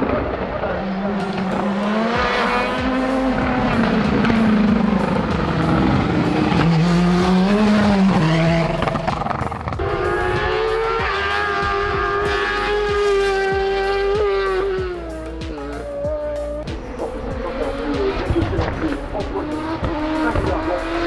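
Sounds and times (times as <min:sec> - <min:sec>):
race car engine accelerating: 0:00.0 - 0:21.0.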